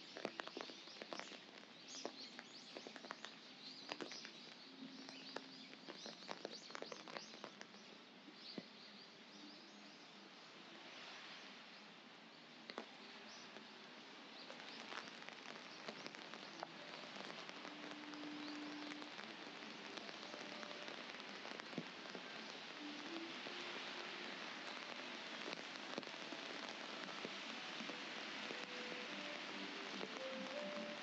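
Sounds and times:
raindrop taps: 0.0 - 8.7, 12.7 - 13.7, 14.4 - 31.0
rain hissing on pavement: 0.0 - 31.0.

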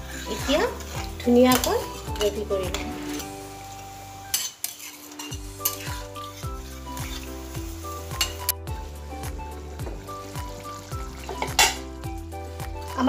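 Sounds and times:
metal spatula scraping pan: 0.0 - 3.5, 4.2 - 8.6
curry sizzling: 0.0 - 13.0
music with steady beat: 5.4 - 13.0.

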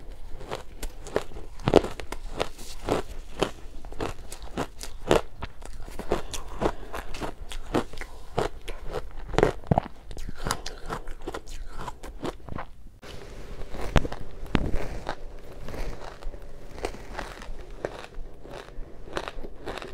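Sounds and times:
ice crunching while chewing: 0.0 - 12.8, 13.4 - 19.9.

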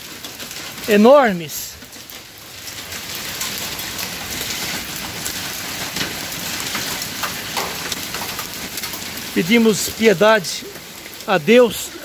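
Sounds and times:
hailstones striking hard surfaces: 0.0 - 12.0
heavy rain hissing: 0.0 - 12.0.

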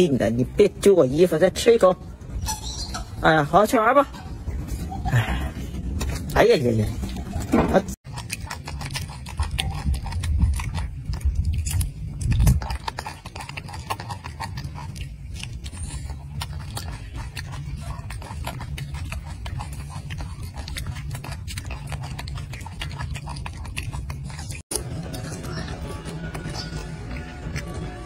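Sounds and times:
monkey chewing clicks and smacks: 5.9 - 28.0.

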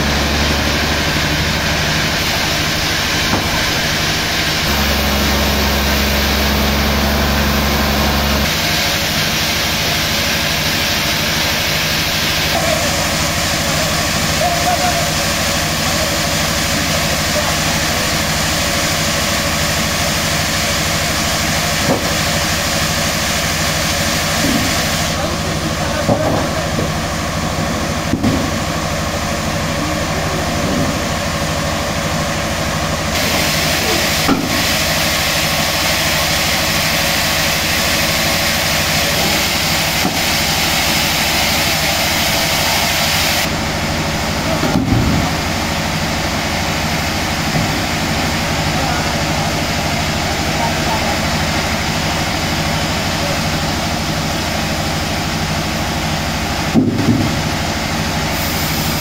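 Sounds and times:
sawmill machinery drone: 0.0 - 59.0
wooden slabs knocking: 56.8 - 57.4.

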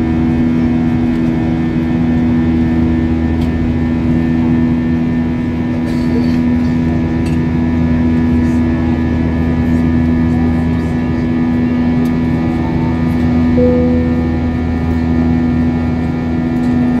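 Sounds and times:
airplane cabin engine drone: 0.0 - 17.0
short higher tone: 13.6 - 15.5.

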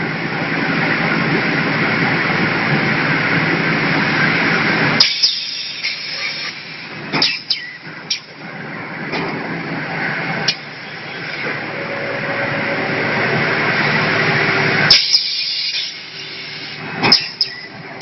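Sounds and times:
low steady machine hum: 7.8 - 18.0
machine hissing with rushing air: 13.5 - 17.6.

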